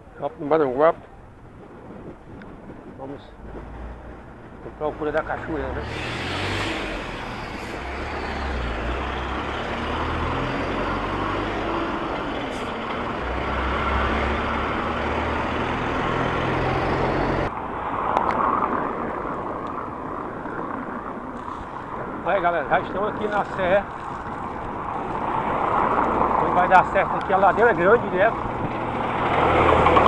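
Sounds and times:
street traffic: 0.0 - 30.0
wind rushing on microphone: 0.0 - 30.0
bus engine rumble: 1.0 - 17.5, 26.0 - 30.0.

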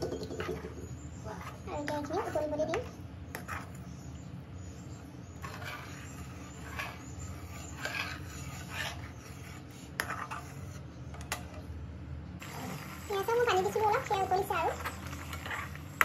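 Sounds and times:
steady low hum: 0.0 - 16.0
metal spatula scraping a pan: 0.4 - 4.1, 5.2 - 11.6, 12.4 - 16.0.

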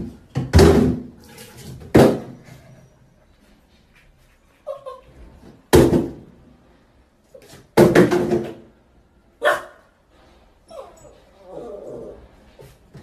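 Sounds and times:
small puppy barking: 9.4 - 9.9.

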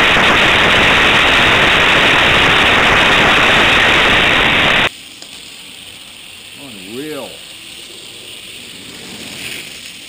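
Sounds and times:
loud steady rushing noise: 0.0 - 4.9.

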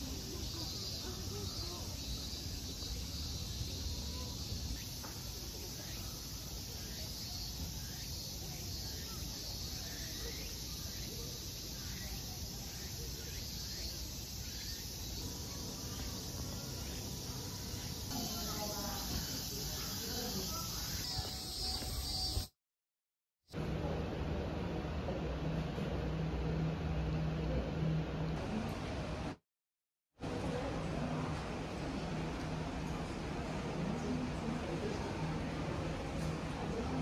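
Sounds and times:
high insect drone: 0.0 - 22.5.

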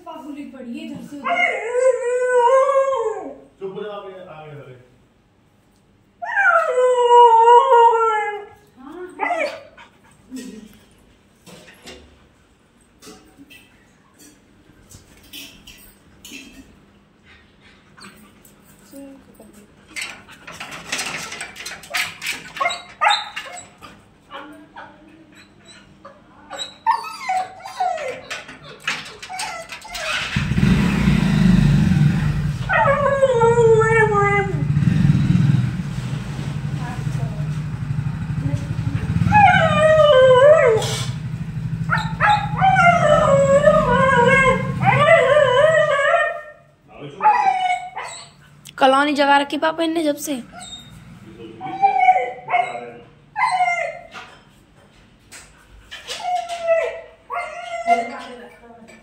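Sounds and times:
dog whining and yipping: 21.9 - 23.9, 25.3 - 30.7, 32.6 - 34.7, 39.2 - 41.2, 41.9 - 46.6, 47.2 - 48.5, 50.5 - 54.3, 55.9 - 58.4
dog barking: 41.9 - 42.7.

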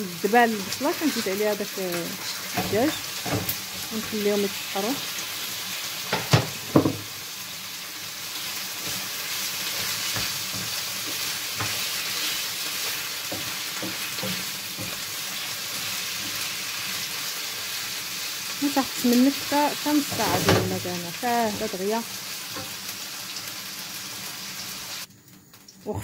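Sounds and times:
food sizzling in oil: 0.0 - 26.0
spatula scraping pan: 2.1 - 4.6, 8.4 - 17.1.

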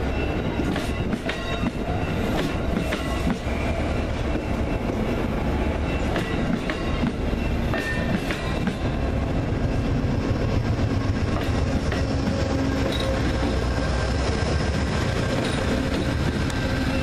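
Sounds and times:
train wheels rumbling on rails: 0.0 - 17.0
wheels clicking over rail joints: 15.0 - 17.0.

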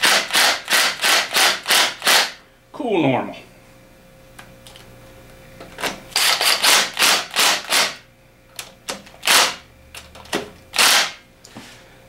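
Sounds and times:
impact driver bursts: 0.0 - 2.4, 6.2 - 8.0, 9.2 - 9.6, 10.7 - 11.2.

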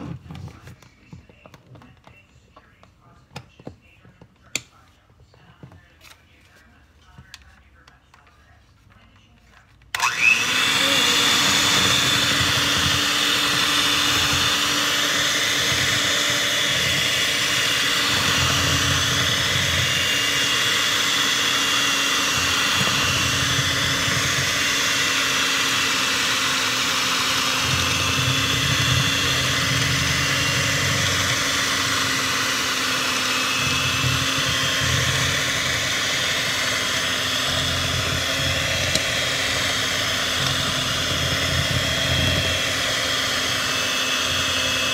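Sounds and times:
electric hand mixer whine: 9.9 - 44.9
beaters churning batter: 10.0 - 44.9.

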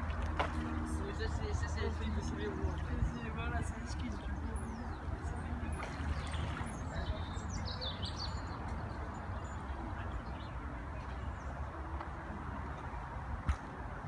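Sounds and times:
small birds chirping: 3.9 - 11.5.

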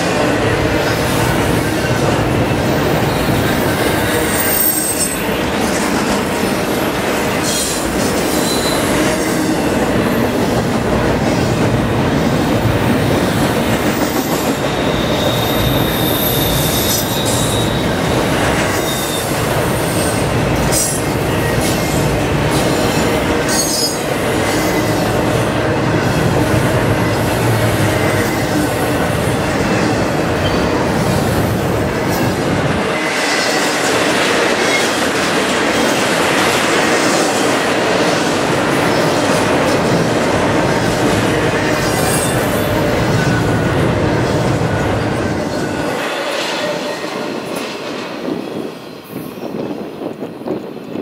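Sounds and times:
train wheels rumbling on rails: 0.0 - 51.0
high wheel squeal: 3.1 - 5.2, 8.3 - 8.9, 14.1 - 20.2.

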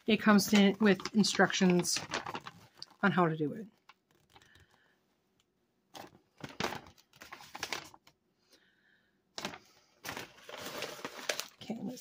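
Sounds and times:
paper leaflet rustling: 0.0 - 4.9, 5.9 - 8.2, 9.4 - 11.8.

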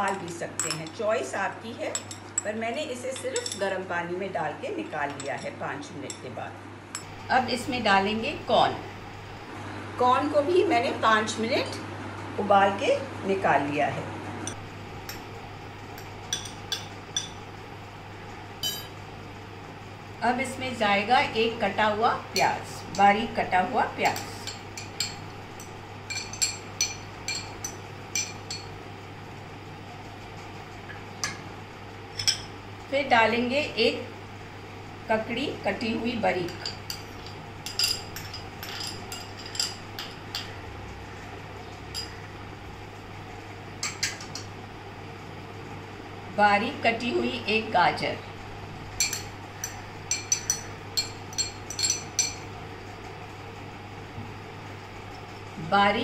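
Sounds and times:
faint steady hum: 0.0 - 56.0
metal spoon clinking on glass bowl: 18.6 - 18.9, 36.5 - 40.5, 49.0 - 52.4
spoon clinking in glass bowl: 49.0 - 52.4.

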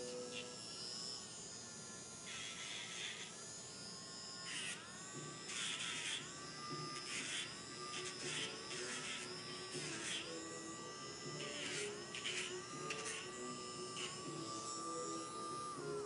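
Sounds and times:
rotary tool grinding nails: 1.9 - 16.0.

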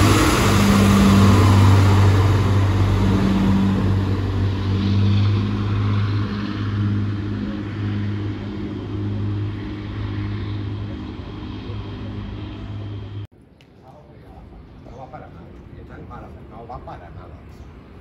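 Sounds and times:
diesel train engine hum: 0.0 - 13.3.

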